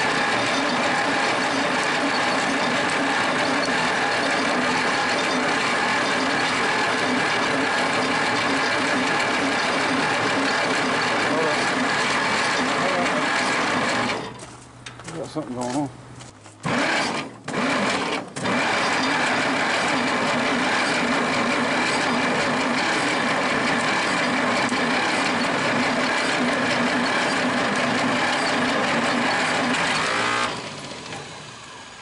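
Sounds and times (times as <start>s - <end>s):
engine starter cranking: 0.0s - 15.1s, 16.6s - 31.4s.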